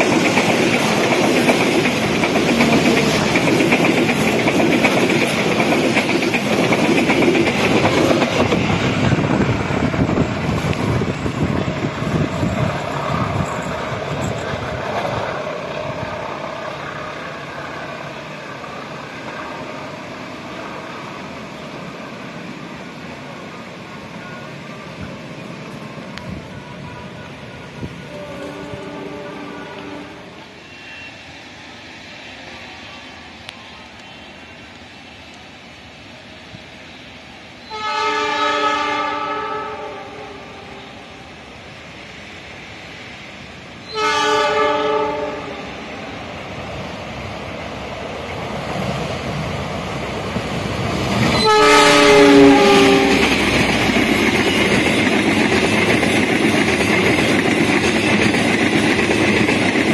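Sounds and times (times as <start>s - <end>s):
train rumbling along track: 0.0s - 59.9s
train horn blast: 26.8s - 31.3s, 37.6s - 41.2s, 43.8s - 45.7s, 51.3s - 53.4s.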